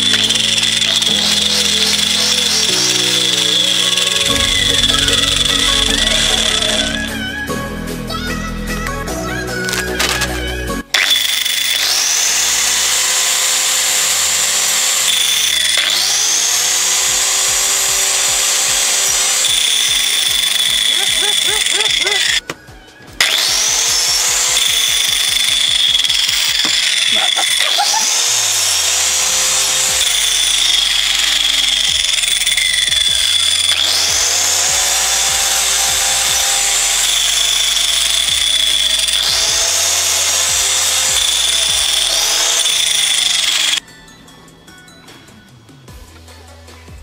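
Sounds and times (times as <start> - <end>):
angle grinder cutting: 0.0 - 7.6, 9.6 - 22.5, 23.2 - 43.8
electronic music with beat: 0.0 - 11.0.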